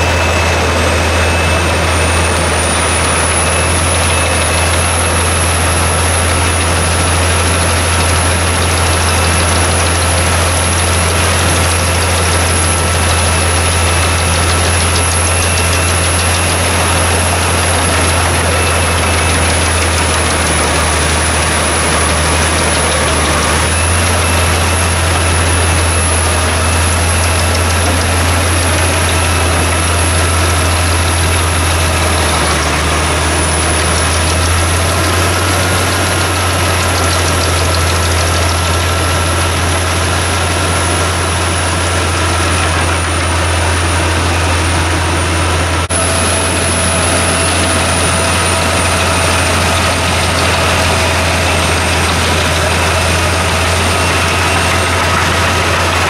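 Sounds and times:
wood chipper droning: 0:00.0 - 0:56.0.

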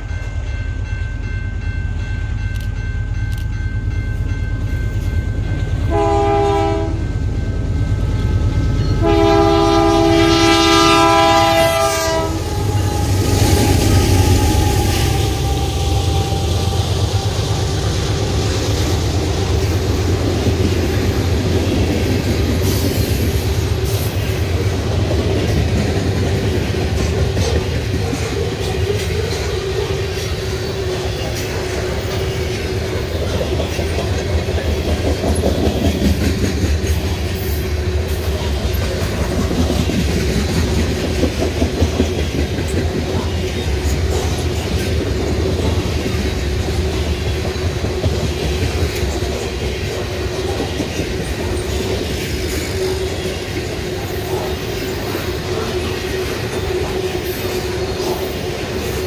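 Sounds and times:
diesel locomotive rumble: 0:00.0 - 0:59.0
train air horn blasts: 0:05.8 - 0:07.1, 0:09.0 - 0:17.8
train wheels clacking over rail joints: 0:17.8 - 0:59.0.

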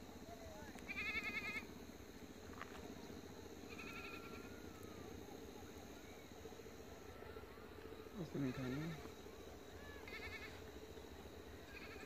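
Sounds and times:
low background hum: 0:00.0 - 0:12.0
faint quavering animal bleat: 0:00.9 - 0:01.7, 0:03.7 - 0:04.5, 0:08.2 - 0:09.1, 0:09.8 - 0:10.6, 0:11.7 - 0:12.0.

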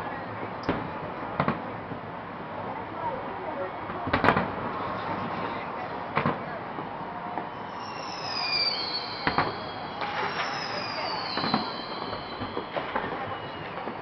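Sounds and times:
firework bangs: 0:00.6 - 0:01.8, 0:03.8 - 0:14.0
firework whistles falling: 0:07.3 - 0:14.0.

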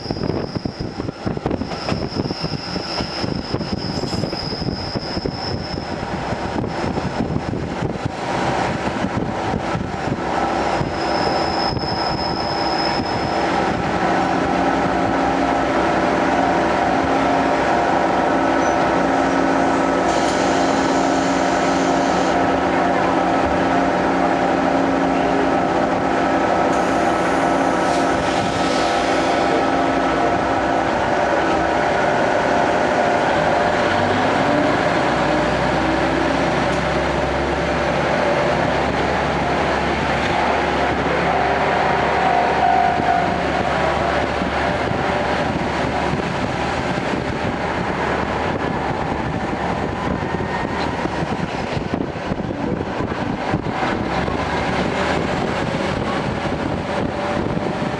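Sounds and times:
diesel railcar engine running: 0:00.0 - 0:57.9.

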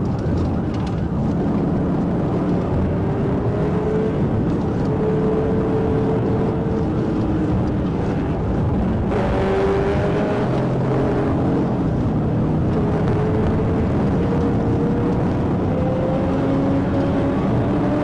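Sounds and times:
car engine drone: 0:00.0 - 0:18.0
road noise: 0:00.0 - 0:18.0.

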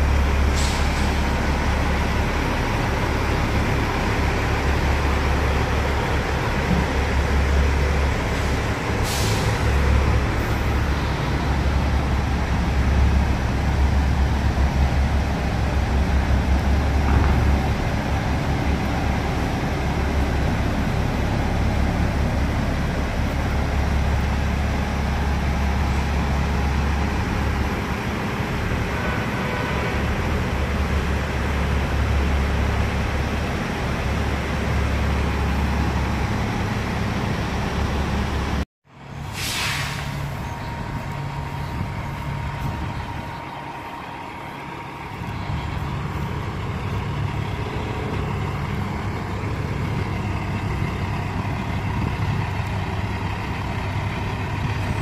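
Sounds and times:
truck diesel engines rumbling: 0:00.0 - 0:55.0
sharp hiss of air: 0:00.5 - 0:01.3, 0:08.3 - 0:09.8, 0:39.2 - 0:40.4.

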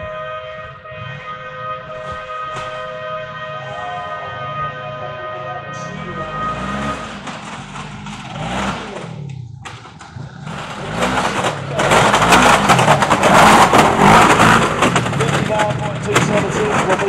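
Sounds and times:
utv engine revving: 0:05.7 - 0:17.0
loud rushing rattling noise: 0:07.1 - 0:17.0.

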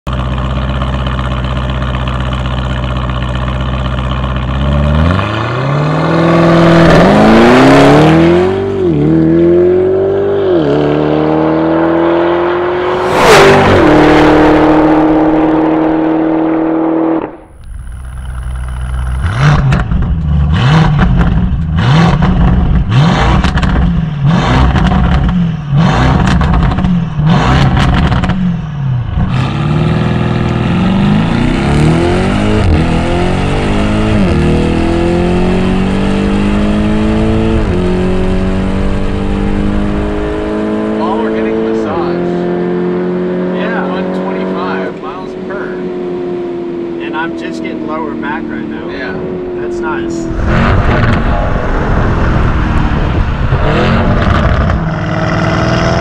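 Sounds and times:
car engine revving: 0:00.1 - 0:56.0
exhaust pops and burbles: 0:26.1 - 0:28.4, 0:49.7 - 0:54.9.

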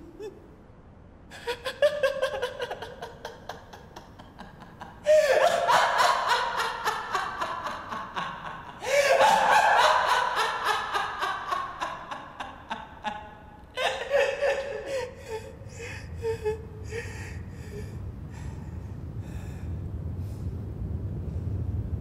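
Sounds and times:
man laughing: 0:01.3 - 0:17.1
low rumble: 0:15.1 - 0:22.0.

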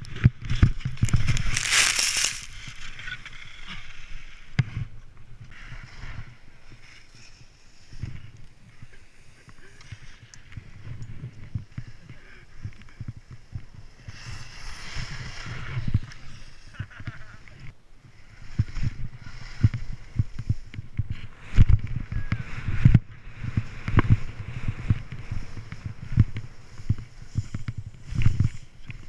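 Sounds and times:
wind thumping on microphone: 0:00.0 - 0:02.8, 0:10.0 - 0:29.0
skis scraping over snow: 0:00.3 - 0:04.8, 0:05.5 - 0:29.0.

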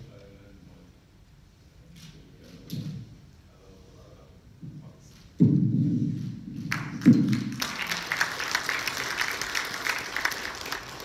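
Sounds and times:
deep thud: 0:05.4 - 0:06.2
audience applause in a large hall: 0:06.6 - 0:11.0.

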